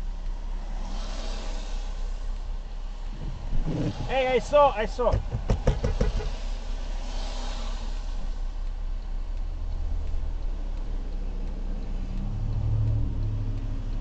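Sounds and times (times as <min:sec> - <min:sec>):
rain: 0:00.0 - 0:05.1, 0:06.2 - 0:14.0
car engine rumble and road noise: 0:00.0 - 0:14.0
passing traffic: 0:00.0 - 0:14.0
truck engine pulling up: 0:01.8 - 0:06.8.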